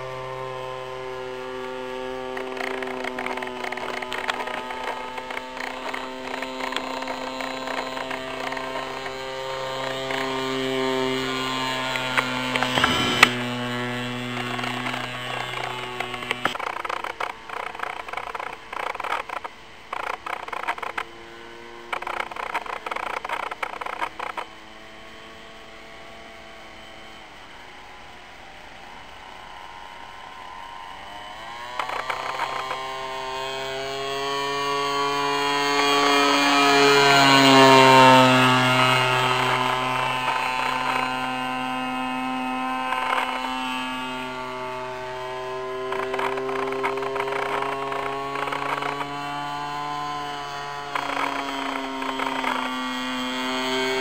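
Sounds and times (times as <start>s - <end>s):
distant model plane engine: 0.0s - 54.0s
bursts of noise: 11.9s - 20.9s.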